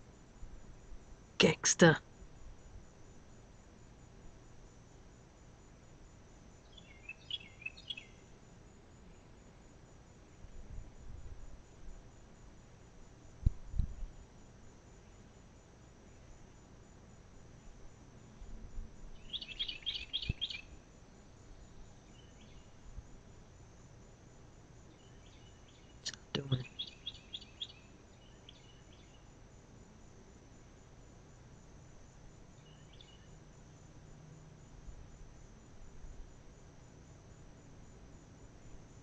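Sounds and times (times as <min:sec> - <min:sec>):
faint steady high hum: 0:00.0 - 0:39.0
high-pitched chirping trills: 0:19.2 - 0:20.7.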